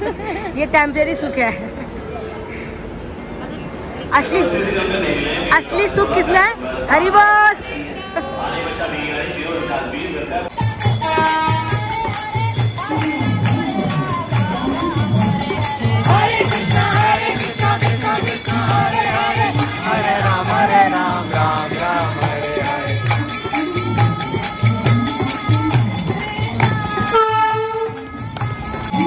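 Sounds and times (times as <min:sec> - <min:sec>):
voices singing a chant: 0:04.6 - 0:29.0
jingling hand cymbals: 0:10.5 - 0:29.0.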